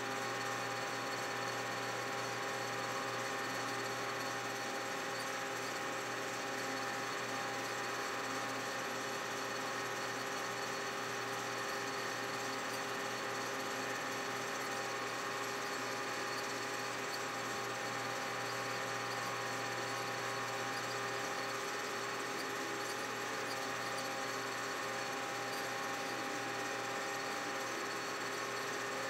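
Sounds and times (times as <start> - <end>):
metal lathe humming: 9.9 - 28.9.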